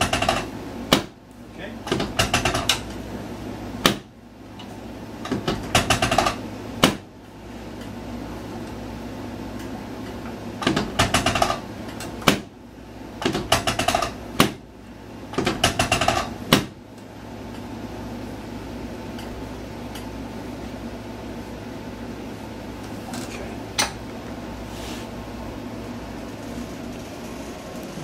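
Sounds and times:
table clicking and creaking: 15.4s - 16.3s.

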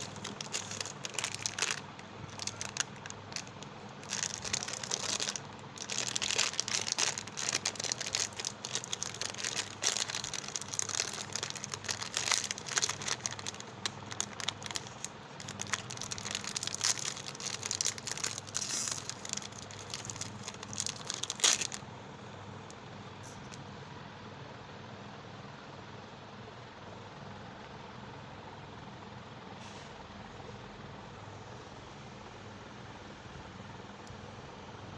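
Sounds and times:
plastic wrapper crinkling: 0.0s - 21.8s.

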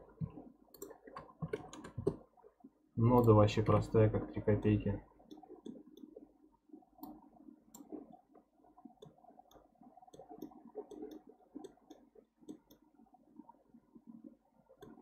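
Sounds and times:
computer mouse clicks: 0.7s - 2.2s, 3.2s - 3.4s, 7.0s - 8.0s, 9.0s - 12.8s, 14.8s - 15.0s.

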